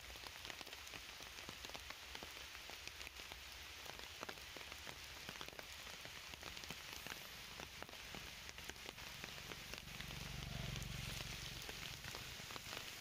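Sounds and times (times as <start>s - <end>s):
light rain pattering on leaves: 0.0s - 13.0s
low hum: 9.3s - 12.3s.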